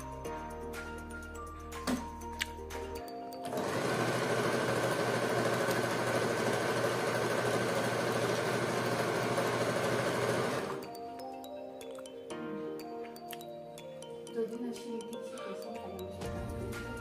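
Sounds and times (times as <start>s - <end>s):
sewing machine stitching: 3.4s - 10.8s.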